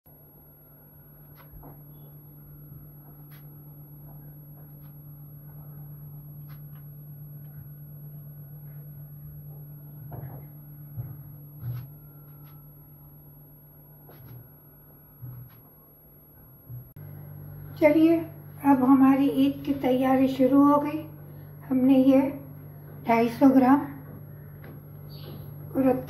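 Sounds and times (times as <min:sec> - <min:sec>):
steady low hum: 0:00.1 - 0:26.0
soft knocks: 0:10.0 - 0:11.9.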